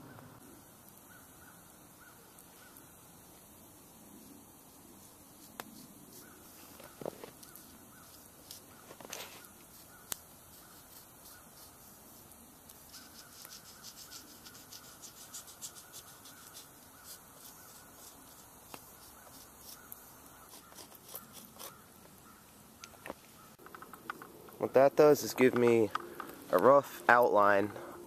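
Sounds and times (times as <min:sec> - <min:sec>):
charcoal stick scratching wood: 0:04.6 - 0:21.9.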